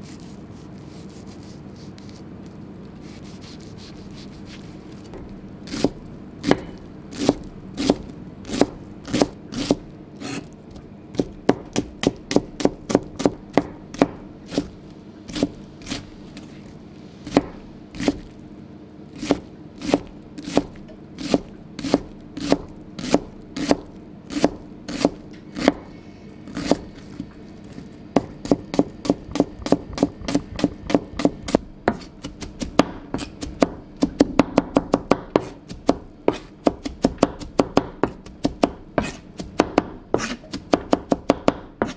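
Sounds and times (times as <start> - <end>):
knife chopping on cutting board: 5.2 - 10.5, 11.2 - 14.7, 17.2 - 18.3, 19.2 - 25.9, 28.2 - 41.9.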